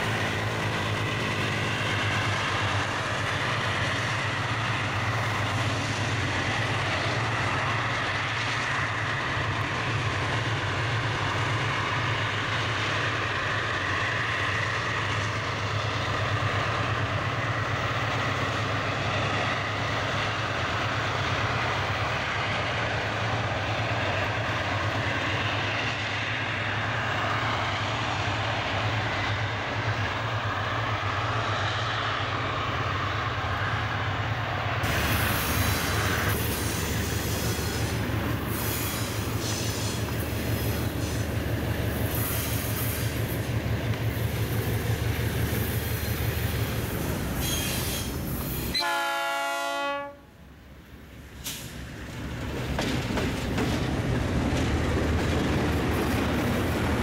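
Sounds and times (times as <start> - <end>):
diesel locomotive engine drone: 0.0 - 57.0
wheel and rail noise: 0.0 - 57.0
train horn blast: 48.7 - 50.4.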